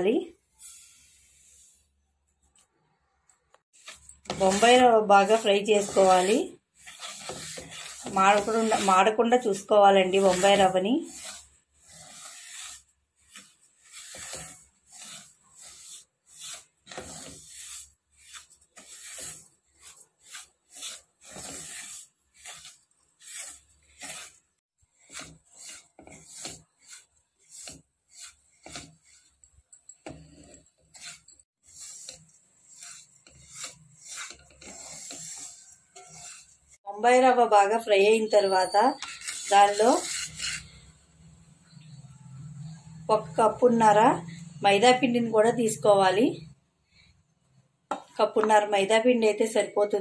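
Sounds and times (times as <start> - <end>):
wooden spatula scraping pan: 0.4 - 1.9, 3.6 - 47.2.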